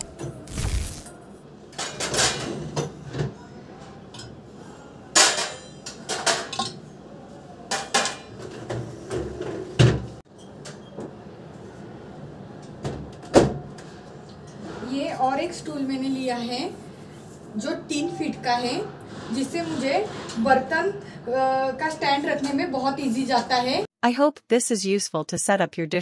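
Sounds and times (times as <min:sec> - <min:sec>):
dishes clattering in wire rack: 0:01.8 - 0:03.3, 0:05.2 - 0:06.9, 0:07.7 - 0:10.9.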